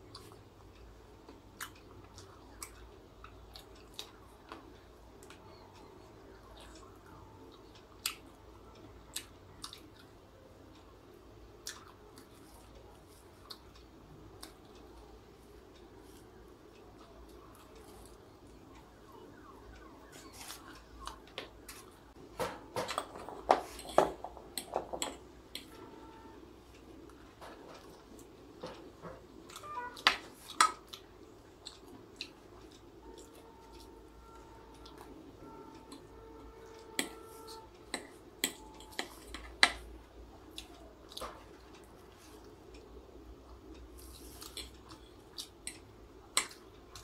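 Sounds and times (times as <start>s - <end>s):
chewing crispy food: 0.0s - 0.4s, 1.3s - 4.6s, 6.4s - 10.2s, 16.0s - 22.0s, 29.4s - 34.0s
faint steady whine: 0.0s - 47.0s.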